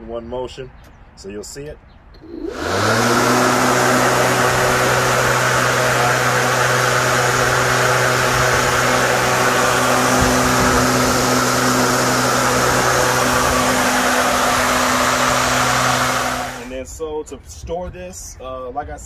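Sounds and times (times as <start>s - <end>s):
electric lawn mower motor hum: 2.2s - 16.7s
rushing whoosh of mower blade: 2.2s - 16.8s.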